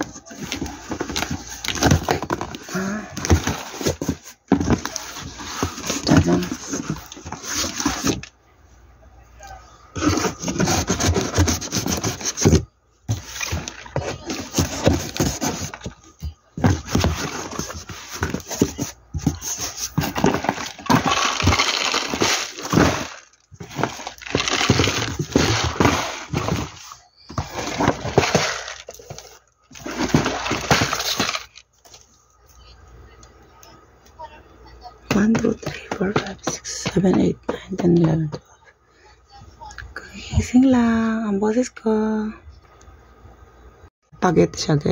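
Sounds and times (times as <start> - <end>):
cardboard box being opened: 10.0 - 31.6
plastic wrap crinkling: 19.9 - 26.4.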